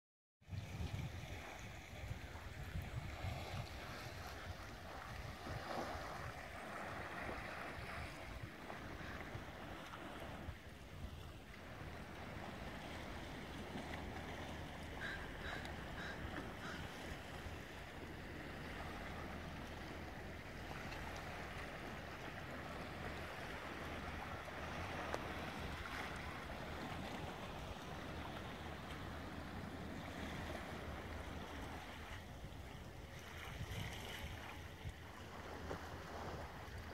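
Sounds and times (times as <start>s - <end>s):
wind on microphone: 0.4s - 14.3s, 23.2s - 36.9s.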